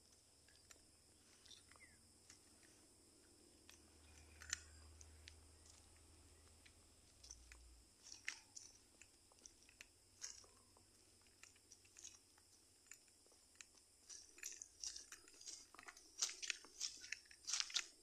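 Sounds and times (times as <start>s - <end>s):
footsteps crunching on dry leaves: 8.0s - 8.8s, 10.2s - 10.6s, 14.1s - 18.0s.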